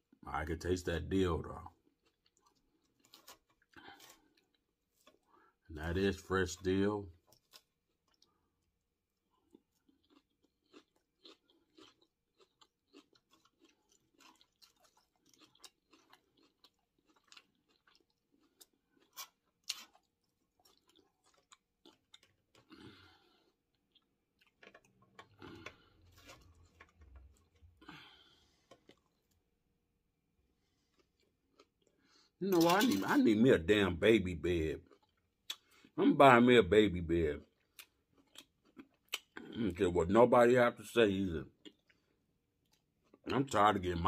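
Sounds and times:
chewing salad: 1.5s - 29.5s, 30.6s - 33.8s, 37.4s - 39.8s.

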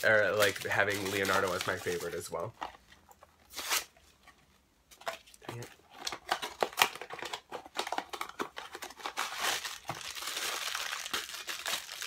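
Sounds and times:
packaging crackling and tearing: 0.0s - 2.5s, 5.5s - 12.0s.

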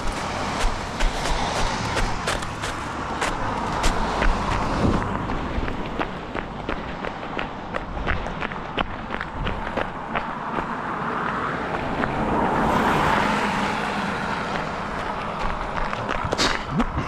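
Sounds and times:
footsteps on pavement: 0.0s - 17.0s
car driving past: 10.8s - 16.0s.

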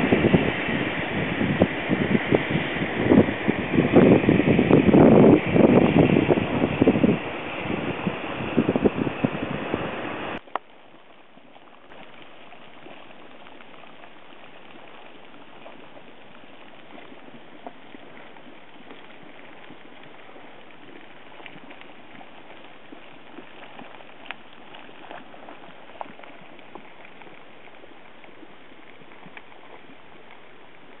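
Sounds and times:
wind buffeting microphone: 0.0s - 10.4s
hot spring bubbling: 0.0s - 31.0s.

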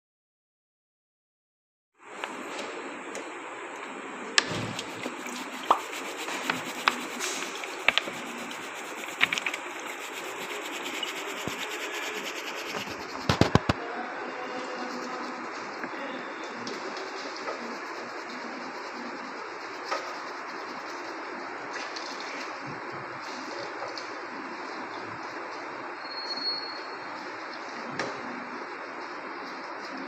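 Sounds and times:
brush bristles rubbing: 4.8s - 13.7s, 14.4s - 15.8s, 16.5s - 21.4s
sharp clicks and knocks: 9.0s - 9.7s, 12.6s - 13.8s.

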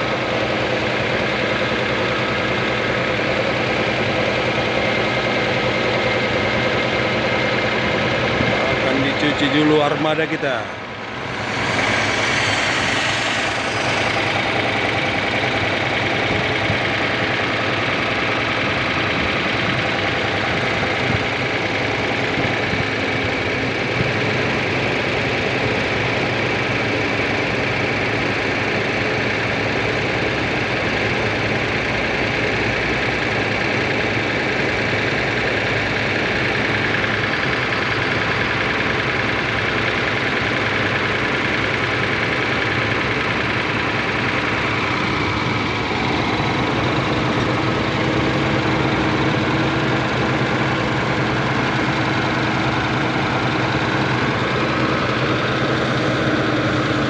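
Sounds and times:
diesel bus engine idling: 0.0s - 57.0s.

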